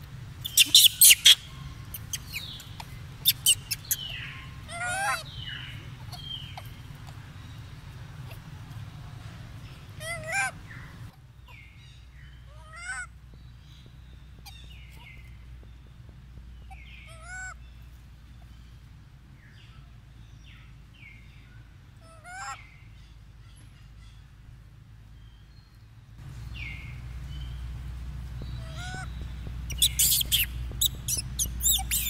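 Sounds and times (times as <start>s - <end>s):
monkey calls: 0.4s - 7.3s, 10.0s - 11.1s, 28.6s - 32.0s.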